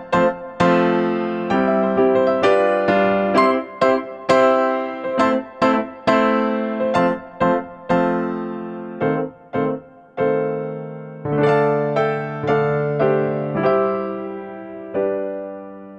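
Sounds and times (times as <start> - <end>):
piano music: 0.0 - 15.9.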